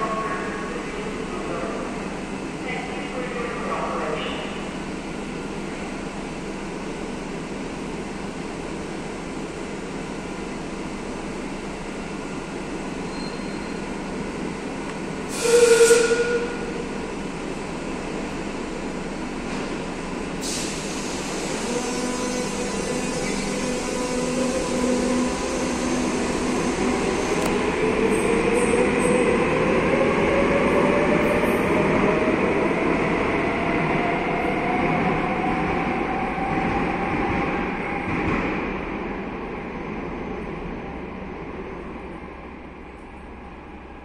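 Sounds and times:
brief loud tone: 0:13.1 - 0:13.8
electric train humming: 0:13.9 - 0:38.1.

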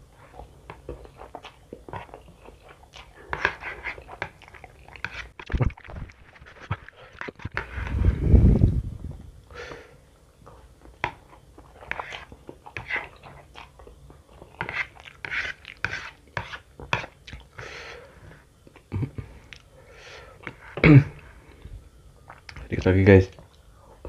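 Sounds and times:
wet chewing: 0:00.3 - 0:07.7.

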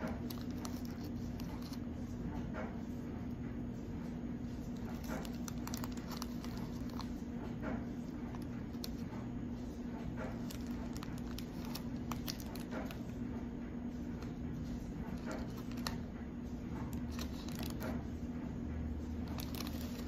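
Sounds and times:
plastic bag crinkling: 0:00.0 - 0:01.9, 0:04.4 - 0:13.3, 0:13.9 - 0:18.1, 0:19.1 - 0:20.0
steady low hum: 0:00.0 - 0:20.0.

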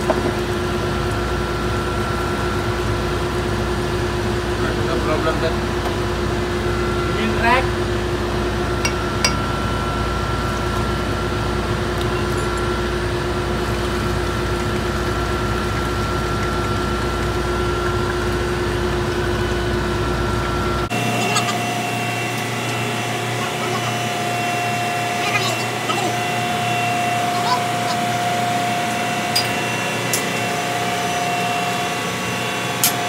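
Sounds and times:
engine-room machinery drone: 0:00.0 - 0:33.0
machinery whining tones: 0:19.1 - 0:33.0.

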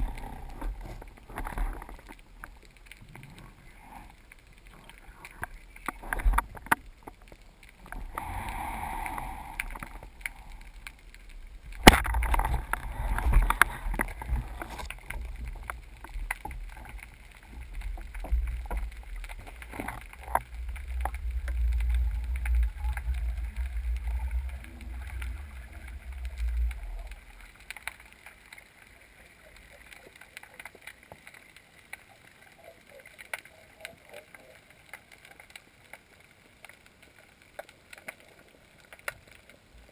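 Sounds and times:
low underwater rumbling: 0:00.0 - 0:30.4.

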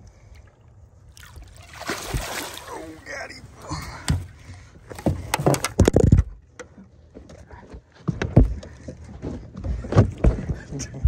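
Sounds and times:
knocks and rattles in boat: 0:03.7 - 0:11.0.

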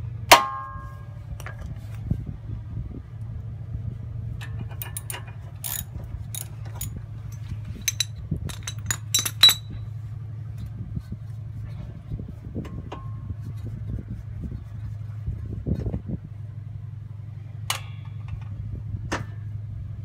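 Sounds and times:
steady low hum: 0:00.0 - 0:20.0
metal tools clinking and rattling: 0:04.4 - 0:09.9.

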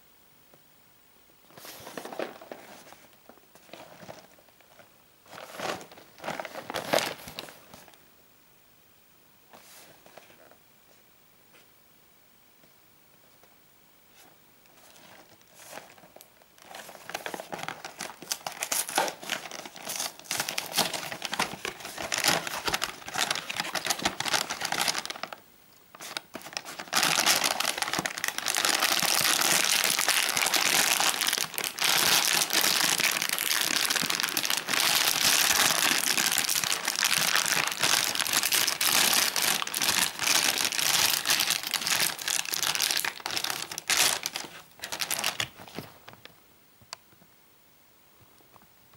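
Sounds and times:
plastic bag crinkling: 0:01.6 - 0:08.0, 0:14.9 - 0:46.3
crackles: 0:14.2 - 0:47.4.

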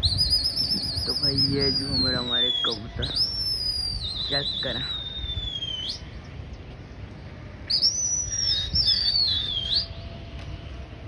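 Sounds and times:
shrill warbling whistling: 0:00.0 - 0:06.2, 0:07.6 - 0:10.1.

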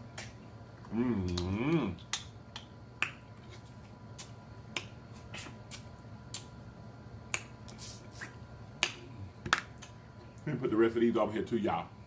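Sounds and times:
lip smacking while chewing: 0:00.1 - 0:06.6.

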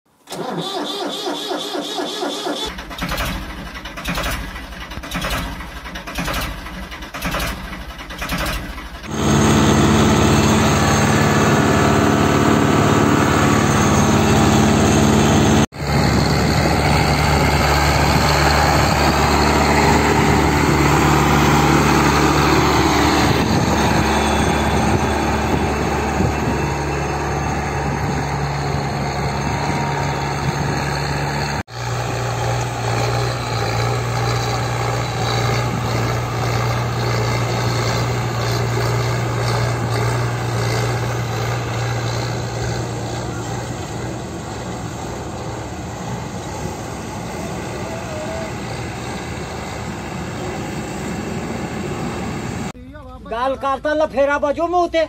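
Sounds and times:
tractor diesel engine running: 0:00.3 - 0:53.3
cultivator pulled through soil: 0:08.2 - 0:30.0.

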